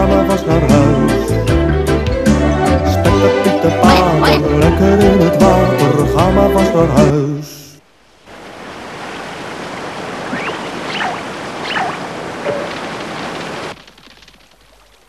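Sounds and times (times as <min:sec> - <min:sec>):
waterfall rushing over rocks: 0:08.0 - 0:13.8.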